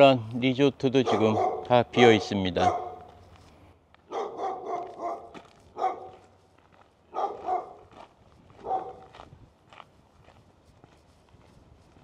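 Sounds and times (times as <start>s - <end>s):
dog barking: 1.0s - 3.1s, 4.1s - 6.2s, 7.1s - 7.9s, 8.6s - 9.1s.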